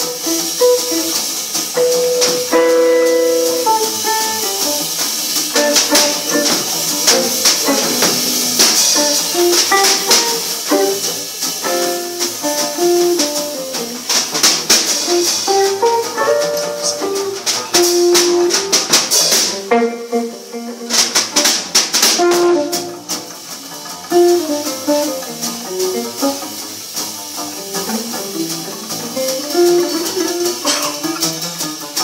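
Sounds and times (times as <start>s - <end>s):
cymbals and drum hits: 0.0s - 32.0s
fast jazz trio: 0.0s - 32.0s
guitar note runs: 1.7s - 21.0s, 22.2s - 23.4s.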